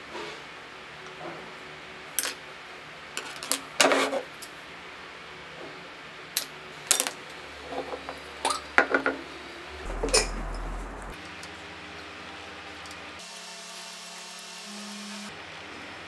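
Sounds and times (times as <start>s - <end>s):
brief low hum: 9.6s - 11.2s.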